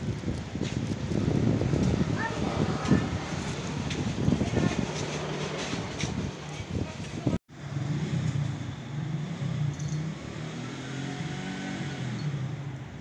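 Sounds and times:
vehicle engine humming: 0.0s - 10.6s.

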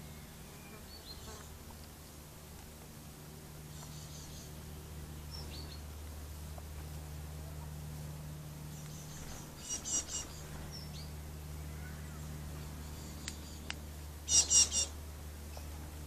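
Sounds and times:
jackdaw calls: 8.8s - 15.0s.

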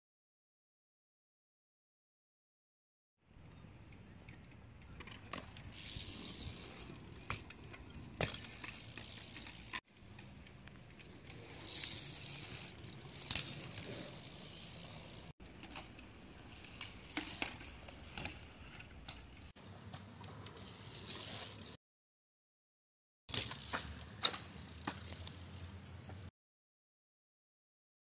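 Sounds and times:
bike clicks and rattles: 3.3s - 21.6s, 23.3s - 26.3s
bike tyres rolling on concrete: 3.3s - 21.8s, 23.3s - 26.3s.

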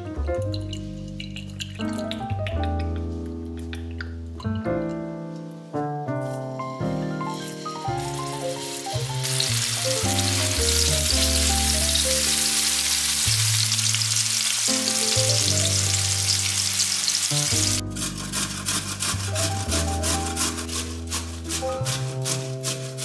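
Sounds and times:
background music: 0.0s - 23.0s
patties sizzling in a pan: 7.4s - 17.8s.

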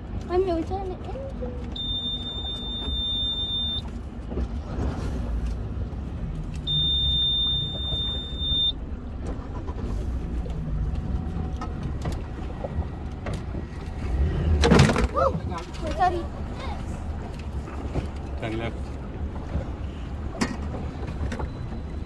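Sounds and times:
electronic warning beeps: 1.7s - 3.9s, 6.7s - 8.8s.

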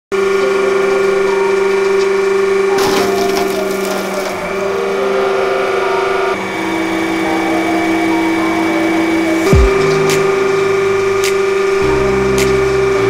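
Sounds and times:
ice cracking and shattering: 2.8s - 5.1s.

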